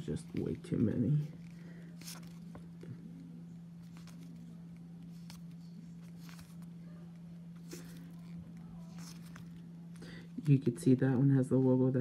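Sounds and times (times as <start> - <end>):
steady low hum: 0.0 - 12.0
cards flicking and rubbing: 0.1 - 2.8, 3.8 - 6.8, 7.5 - 9.6.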